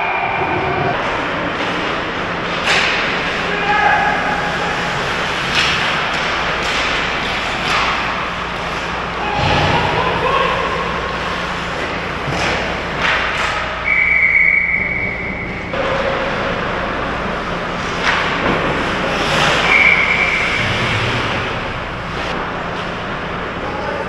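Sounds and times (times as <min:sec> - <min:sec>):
hockey sticks and puck knocking: 0:01.0 - 0:13.8
skate blades scraping ice: 0:02.6 - 0:13.6, 0:17.8 - 0:21.6
high steady squeal: 0:13.8 - 0:15.8, 0:19.0 - 0:21.7.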